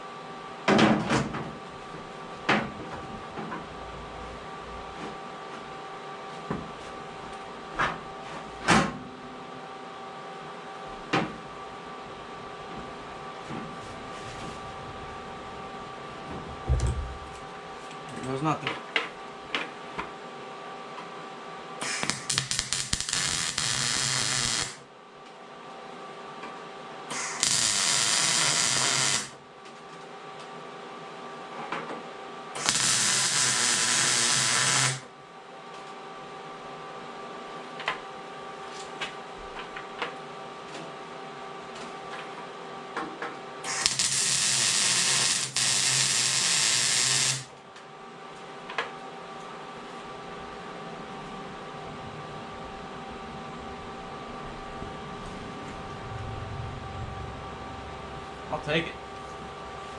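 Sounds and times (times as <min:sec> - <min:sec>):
steady hum: 0:00.0 - 0:59.9
welding arc crackling: 0:21.8 - 0:24.8, 0:27.1 - 0:29.4, 0:32.6 - 0:35.1, 0:43.7 - 0:47.5.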